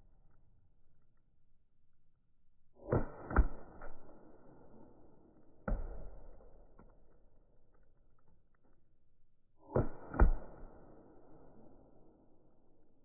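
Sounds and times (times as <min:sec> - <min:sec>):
paintball marker shots: 0:02.8 - 0:04.6, 0:09.7 - 0:11.6.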